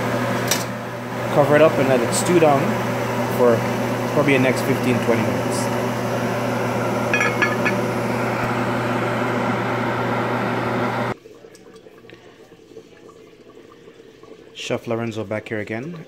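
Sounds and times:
low hum: 5.9s - 9.5s
metal pot lid clinking: 7.1s - 7.9s.

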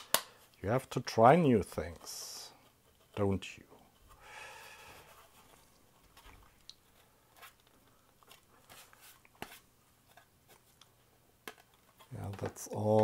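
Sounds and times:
plastic enclosure clicks and taps: 0.0s - 0.3s.

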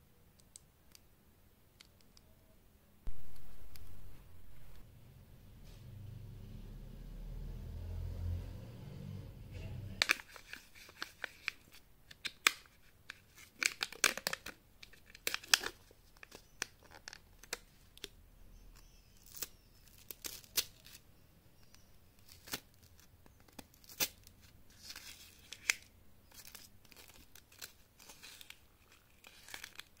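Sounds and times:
foil crinkling and tearing: 23.7s - 30.0s.

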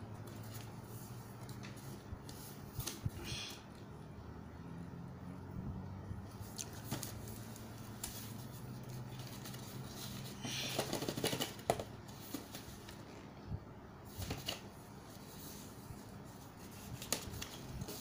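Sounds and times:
low steady hum: 0.0s - 18.0s
cardboard rustling: 6.5s - 13.1s, 14.1s - 18.0s.

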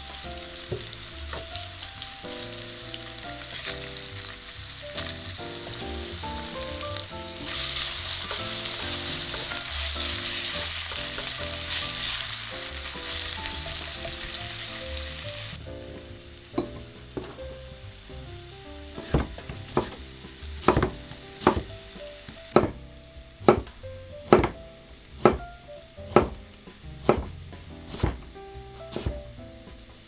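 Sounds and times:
frying sizzle: 0.0s - 30.0s
soft background music: 0.0s - 30.0s
knife chopping on wooden board: 19.0s - 20.0s, 20.6s - 21.7s, 22.5s - 22.8s, 23.4s - 24.6s, 25.2s - 25.4s, 26.1s - 26.4s, 27.0s - 28.3s, 28.9s - 29.2s.

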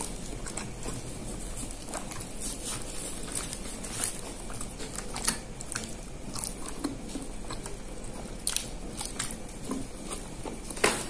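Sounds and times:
leaf wrapper crackling: 0.0s - 7.3s.

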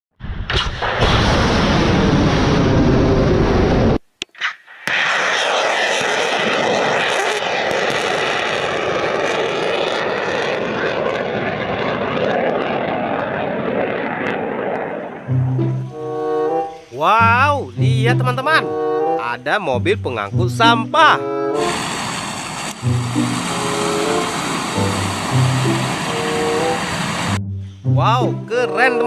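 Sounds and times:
missile launch blast: 0.2s - 4.0s, 4.8s - 15.7s, 21.6s - 27.4s
rocket motor rushing: 4.8s - 11.4s, 21.6s - 27.4s.

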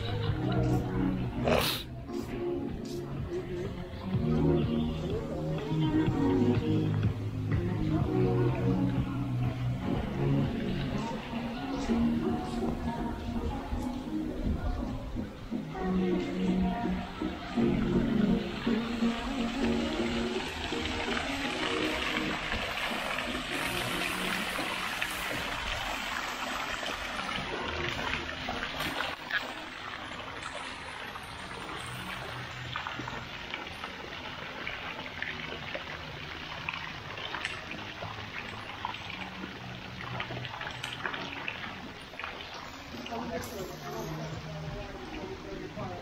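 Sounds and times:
fountain water splashing into pond: 16.6s - 46.0s.

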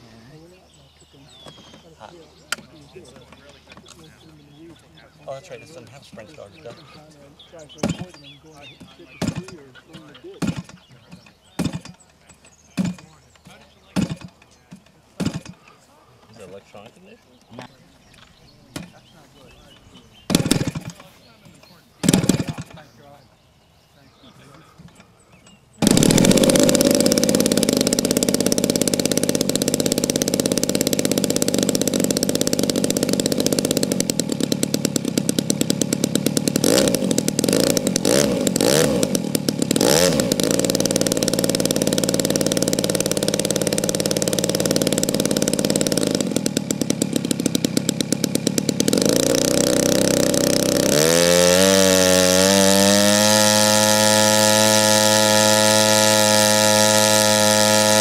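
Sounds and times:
model airplane gas engine running: 18.1s - 23.0s, 25.8s - 58.0s.

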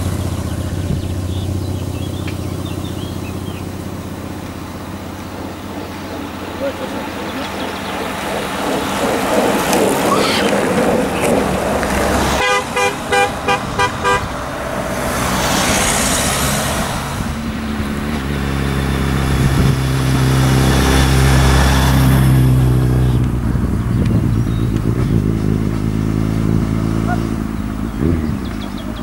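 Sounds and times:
motorcycle engine running: 0.0s - 14.7s, 16.7s - 29.0s
vehicle rushing past: 0.0s - 29.0s
vehicle horn honking: 12.3s - 14.6s.

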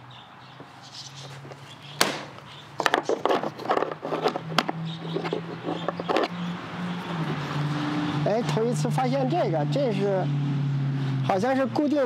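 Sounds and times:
plastic parts clicking and rattling: 2.8s - 6.4s.

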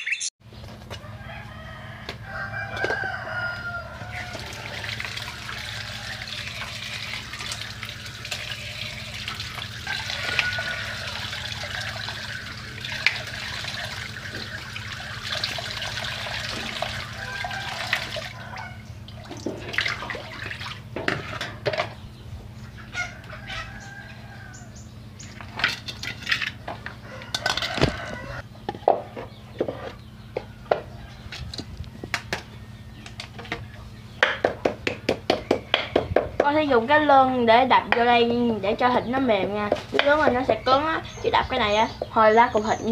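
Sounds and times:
tap water running into basin: 4.0s - 18.5s, 19.1s - 21.5s
knocks and clatters on concrete: 34.2s - 36.6s.

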